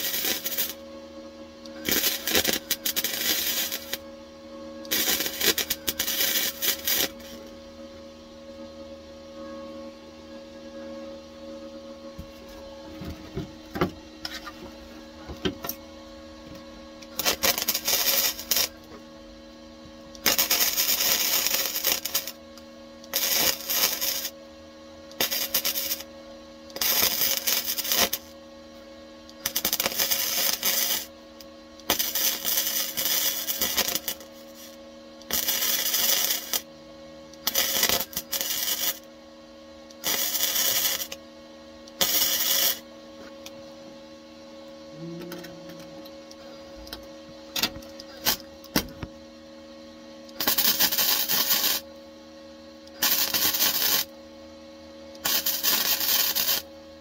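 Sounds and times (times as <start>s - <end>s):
welding arc crackling: 0.0s - 0.8s, 1.8s - 4.0s, 4.9s - 7.4s, 17.1s - 18.9s, 20.2s - 22.4s, 23.0s - 24.4s, 25.1s - 26.1s, 26.7s - 28.4s, 29.3s - 31.1s, 31.8s - 36.7s, 37.4s - 39.1s, 40.0s - 41.2s, 41.9s - 42.8s, 47.6s - 48.9s, 50.3s - 51.8s, 53.0s - 54.1s, 55.2s - 56.7s
steady hum: 0.0s - 57.0s.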